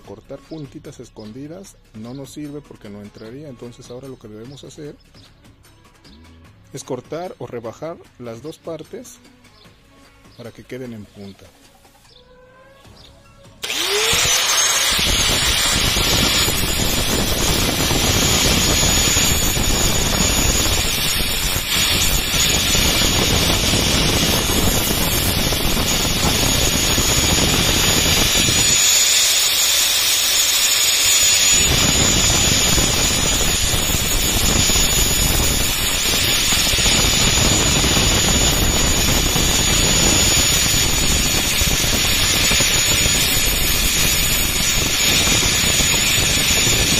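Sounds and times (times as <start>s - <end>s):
angle grinder whining: 13.6s - 46.9s
steel grinding on disc: 13.6s - 46.9s.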